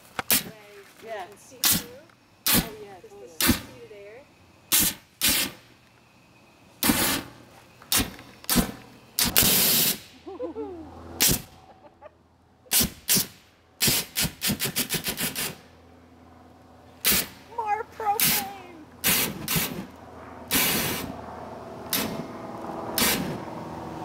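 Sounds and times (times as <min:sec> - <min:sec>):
propane flame blasts: 0:01.5 - 0:04.0, 0:04.6 - 0:05.8, 0:06.8 - 0:10.3, 0:10.9 - 0:11.6, 0:12.6 - 0:15.9, 0:16.8 - 0:17.6, 0:18.2 - 0:24.0.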